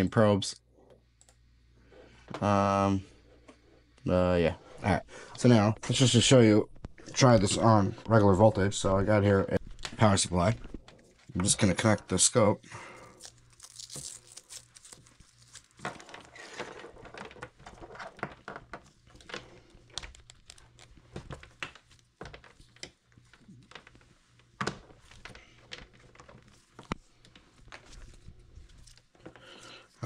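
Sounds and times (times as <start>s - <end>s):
rustling of cables and plastic: 12.9s - 30.0s.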